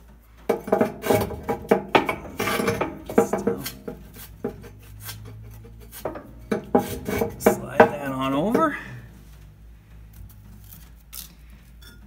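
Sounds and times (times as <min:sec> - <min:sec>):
brick scraping against steel: 0:00.4 - 0:09.4
metal ringing from knocks: 0:00.5 - 0:09.1.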